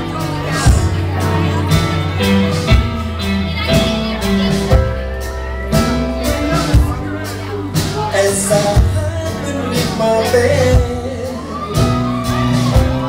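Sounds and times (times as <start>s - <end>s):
live rock band: 0.0s - 13.0s
drum hits: 0.4s - 13.0s.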